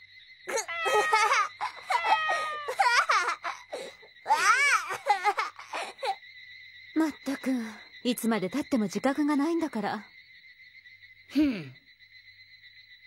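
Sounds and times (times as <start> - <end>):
boy and woman laughing: 0.5 - 6.2.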